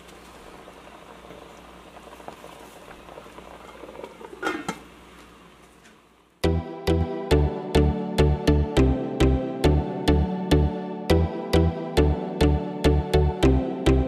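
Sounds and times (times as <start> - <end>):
liquid simmering and bubbling: 0.0 - 5.5
music with a beat: 6.4 - 14.0.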